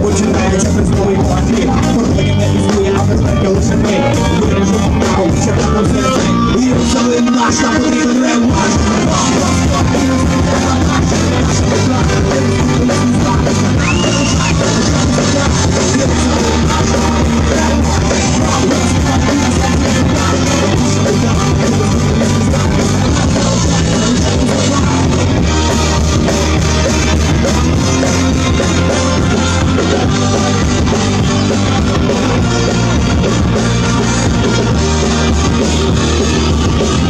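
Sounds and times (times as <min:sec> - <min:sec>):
drum kit: 0:00.0 - 0:37.0
electric guitar: 0:00.0 - 0:37.0.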